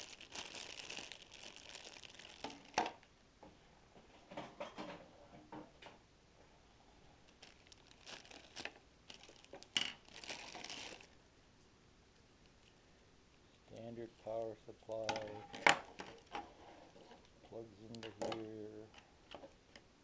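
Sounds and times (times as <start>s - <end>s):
plastic bags crinkling: 0.0s - 3.0s, 7.3s - 11.2s.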